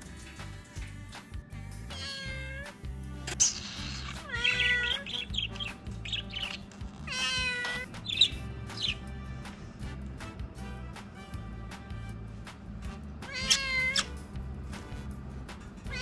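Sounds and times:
background music: 0:00.0 - 0:16.0
cat meowing: 0:01.9 - 0:02.8, 0:03.5 - 0:09.0, 0:13.2 - 0:14.2.

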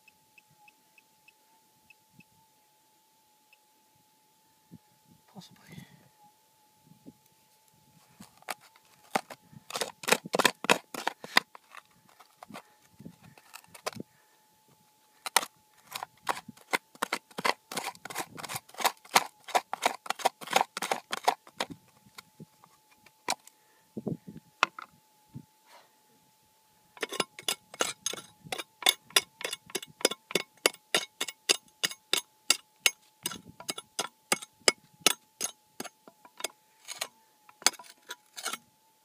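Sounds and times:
tool clicking and knocking on stones: 0:08.3 - 0:12.6, 0:13.2 - 0:14.0, 0:15.2 - 0:22.3, 0:27.0 - 0:38.6
metal detector steady tone: 0:27.0 - 0:38.7.

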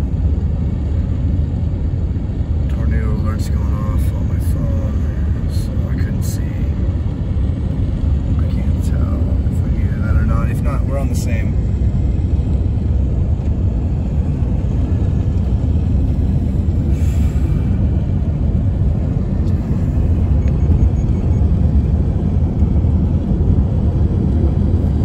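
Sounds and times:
car road and wind rumble: 0:00.0 - 0:25.0.

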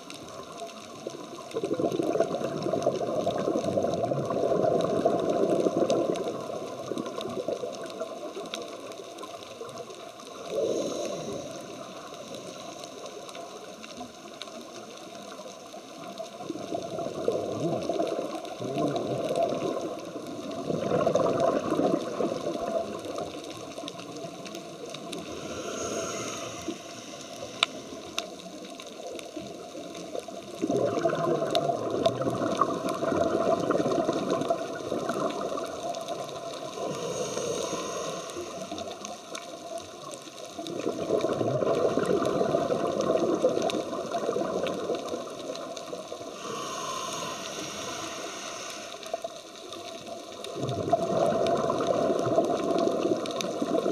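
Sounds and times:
exhaled bubbles underwater: 0:00.0 - 0:53.9
regulator hiss: 0:10.3 - 0:14.1, 0:24.1 - 0:28.7, 0:36.4 - 0:39.6, 0:46.2 - 0:50.1.

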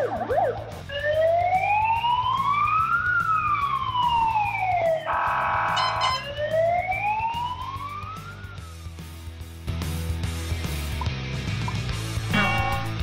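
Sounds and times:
siren wailing: 0:00.0 - 0:08.8
background music: 0:00.0 - 0:13.0
horn-like tone: 0:05.1 - 0:06.4.

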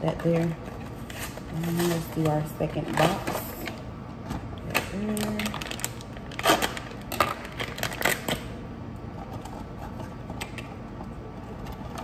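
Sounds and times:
pouch crinkling and crackling: 0:04.7 - 0:08.4.

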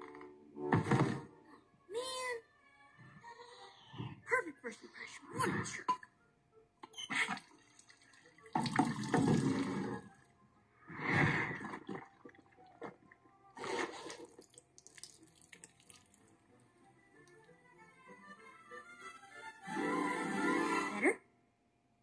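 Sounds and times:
water gushing from sink tap: 0:07.4 - 0:09.8.

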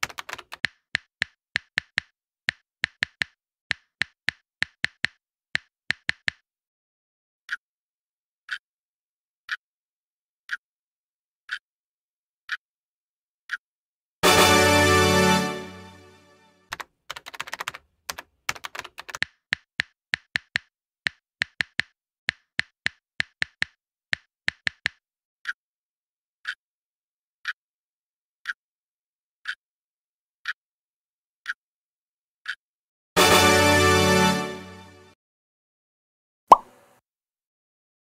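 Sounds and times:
keyboard typing clicks: 0:00.0 - 0:02.1, 0:02.8 - 0:06.4, 0:16.7 - 0:20.6
clock ticking: 0:00.0 - 0:06.4.

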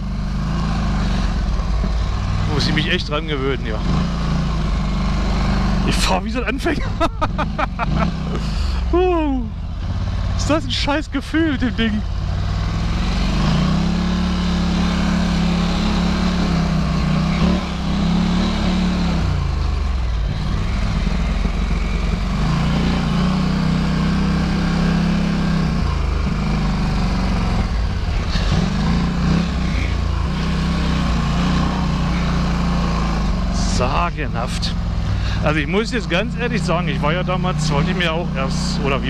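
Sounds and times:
atv engine revving: 0:00.0 - 0:39.0.

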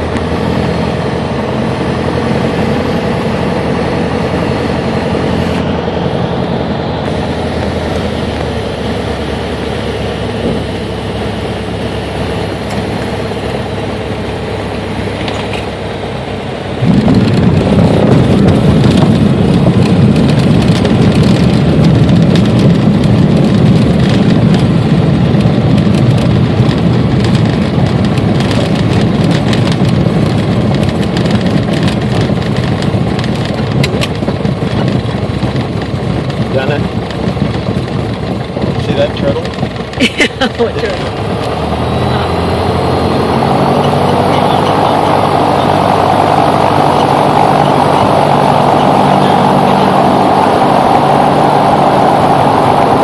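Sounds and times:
propeller plane engine running: 0:00.0 - 0:53.0
wheels rumbling over rough turf: 0:00.0 - 0:53.0.

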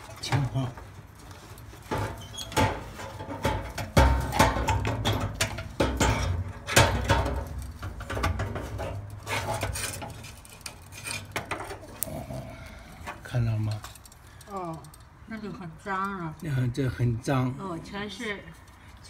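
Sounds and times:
metal scraping and rubbing: 0:00.0 - 0:14.2
sharp knocks and dull bumps: 0:01.8 - 0:10.2.

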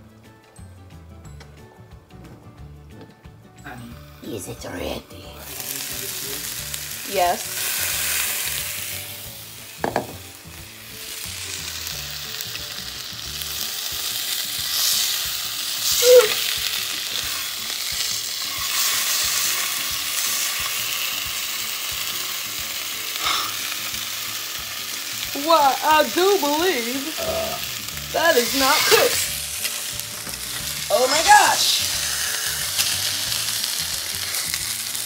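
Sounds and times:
chicken sizzling in frying pan: 0:05.4 - 0:35.0
pan and fork knocks: 0:09.8 - 0:10.2.

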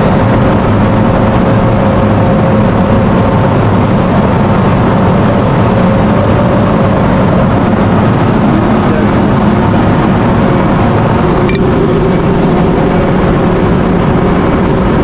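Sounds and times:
ship machinery drone: 0:00.0 - 0:15.0.

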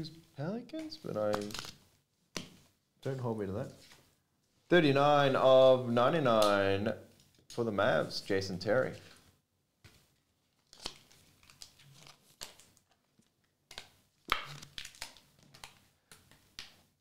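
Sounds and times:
plastic card holders rustling: 0:00.8 - 0:01.8.

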